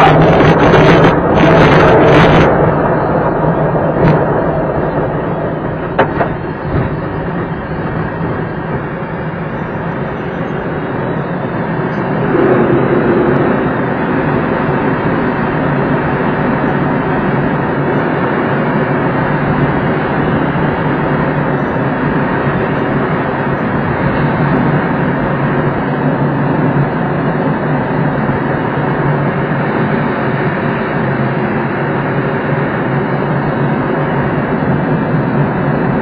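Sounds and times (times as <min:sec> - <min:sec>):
airflow rushing over canopy: 0:00.0 - 0:06.0, 0:11.5 - 0:16.6
plane engine running: 0:00.0 - 0:36.0.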